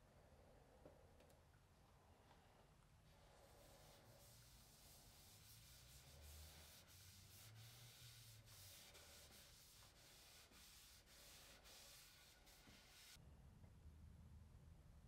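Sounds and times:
cloth rubbing on wood: 0:03.1 - 0:13.2.

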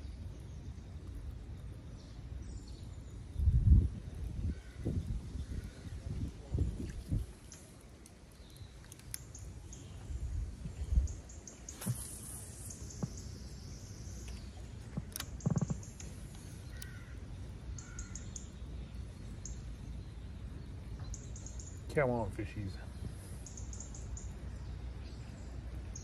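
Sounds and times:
low outdoor rumble: 0:00.0 - 0:26.0
birds calling: 0:04.4 - 0:06.3, 0:07.3 - 0:26.0.

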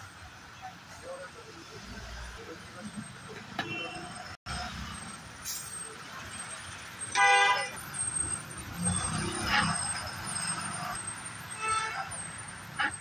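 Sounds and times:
road traffic: 0:00.0 - 0:13.0.

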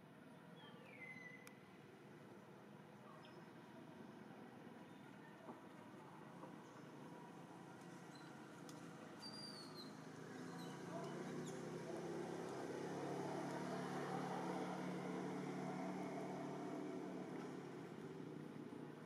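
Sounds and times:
distant motor engine drone: 0:07.8 - 0:19.0.

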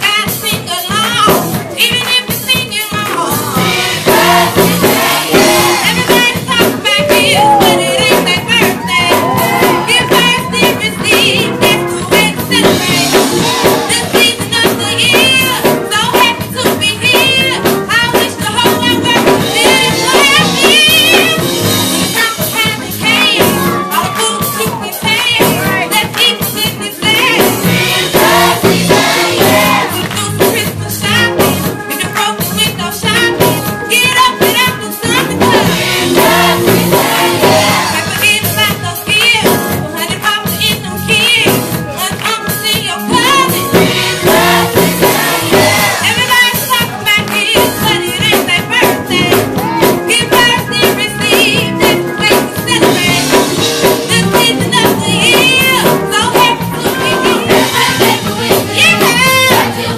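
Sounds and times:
girl singing lead into microphone: 0:00.0 - 0:59.9
instrumental accompaniment: 0:00.0 - 0:59.9
choir singing: 0:03.1 - 0:10.8, 0:12.6 - 0:14.1, 0:27.0 - 0:30.2, 0:35.2 - 0:38.3, 0:43.4 - 0:46.5, 0:56.8 - 0:59.9
hand-clapping: 0:42.1 - 0:42.7, 0:46.7 - 0:47.8.

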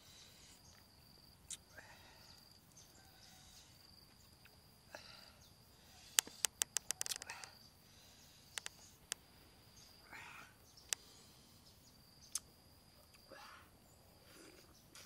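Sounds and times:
insect trilling: 0:00.0 - 0:15.0
sharp clicks: 0:06.1 - 0:07.6, 0:08.5 - 0:09.2, 0:10.8 - 0:11.1.

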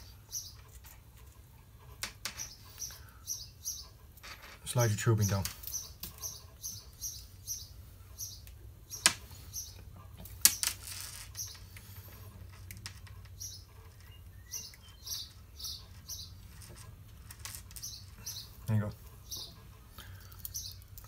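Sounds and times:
nylon line squeaking against tubing: 0:10.4 - 0:18.6.

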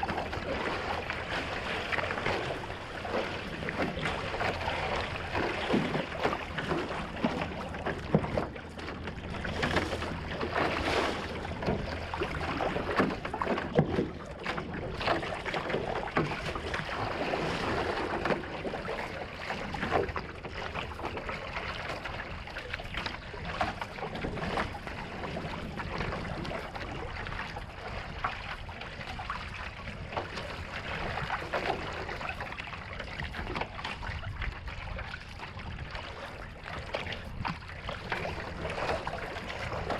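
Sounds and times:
paddle splashing: 0:00.0 - 0:39.9
water rushing along a hull: 0:00.0 - 0:39.9.

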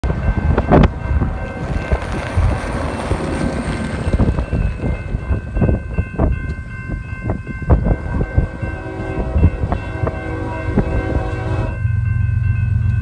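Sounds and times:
wind buffeting microphone: 0:00.0 - 0:12.2
train horn: 0:07.9 - 0:11.9.

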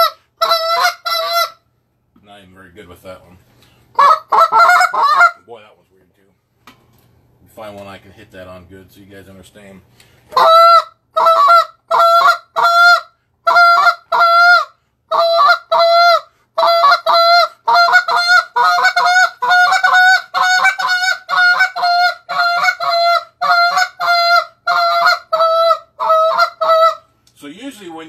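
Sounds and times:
goose call honking: 0:00.0 - 0:01.6, 0:04.0 - 0:05.4, 0:10.3 - 0:27.1.

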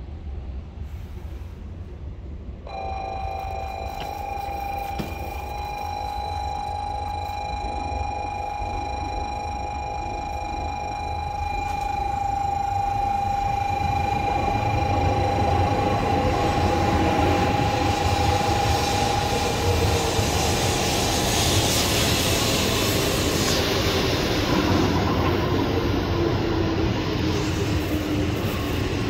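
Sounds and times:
rushing rail and air noise: 0:00.0 - 0:02.9, 0:13.7 - 0:29.0
train whine: 0:00.0 - 0:29.0.

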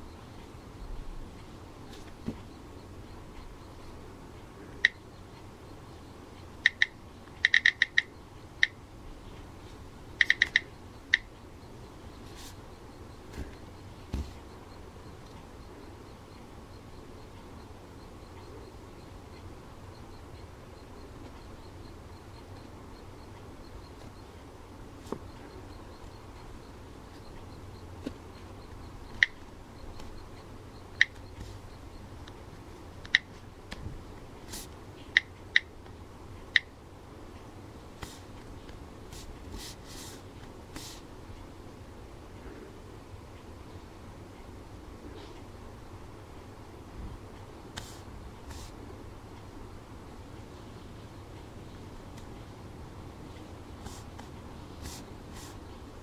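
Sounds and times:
phone keypad tap clicks: 0:06.6 - 0:08.8, 0:10.2 - 0:11.3.

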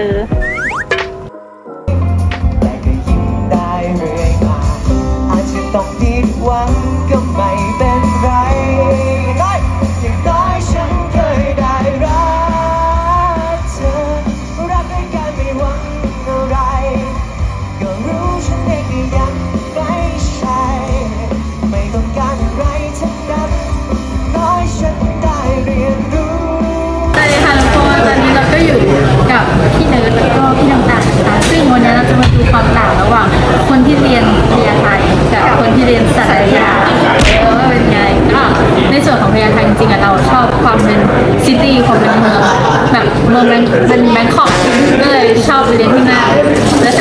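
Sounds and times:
drums: 0:00.0 - 0:01.3, 0:01.9 - 0:38.8
person singing: 0:01.8 - 0:28.4
bass guitar: 0:01.9 - 0:33.8.

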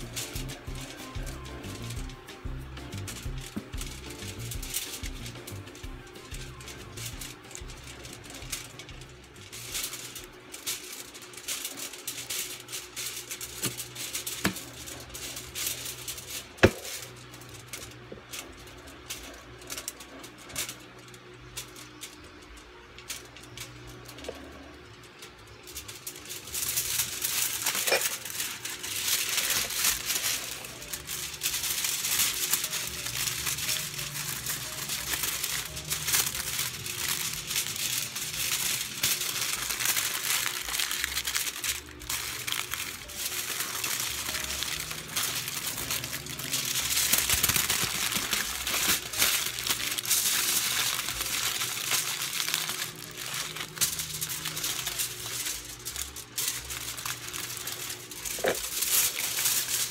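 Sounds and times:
aluminium foil crinkling: 0:00.0 - 0:59.9.

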